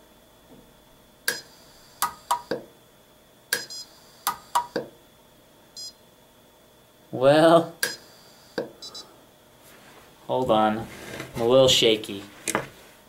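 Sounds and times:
welder snapping clicks: 1.3s - 2.6s, 3.5s - 4.9s.

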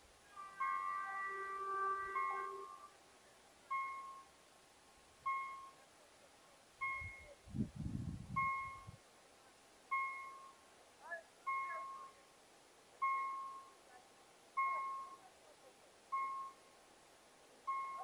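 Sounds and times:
warning bell dinging: 0.4s - 2.8s.

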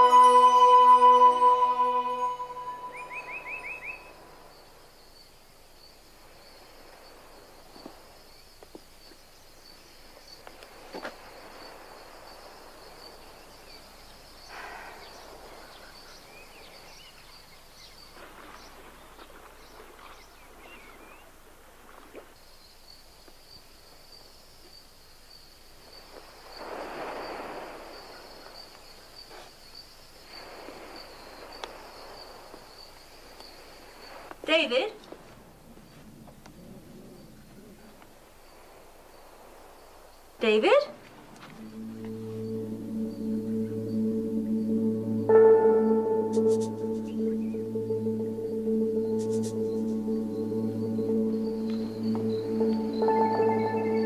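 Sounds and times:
soft swells of noise: 0.0s - 5.0s, 30.2s - 54.0s
high insect trill: 41.4s - 54.0s.

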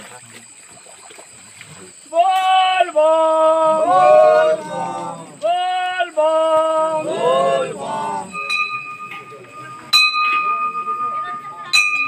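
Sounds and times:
voices chanting: 2.1s - 10.0s
brass bell ringing: 8.0s - 12.0s.

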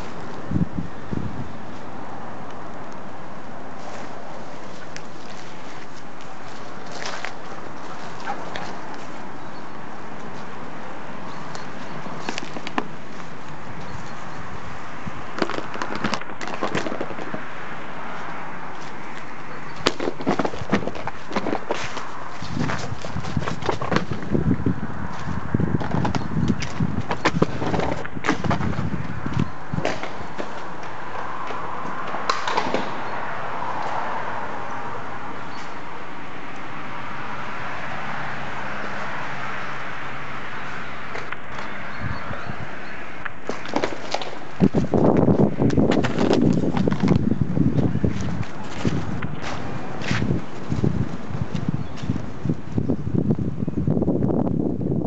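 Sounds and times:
footsteps on rough ground: 3.7s - 33.1s, 43.3s - 52.9s.

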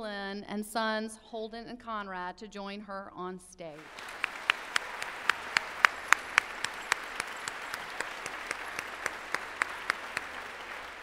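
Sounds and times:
audience applauding: 3.8s - 11.0s
sharp nearby claps: 3.8s - 11.0s.

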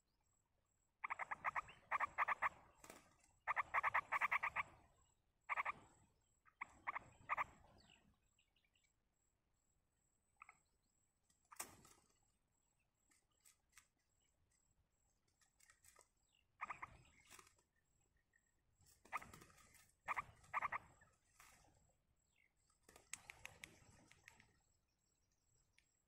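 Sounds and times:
birds chattering calls: 1.0s - 8.9s, 16.3s - 21.6s
faint clicks and rustles: 13.0s - 17.8s, 18.4s - 21.9s, 22.6s - 24.7s.

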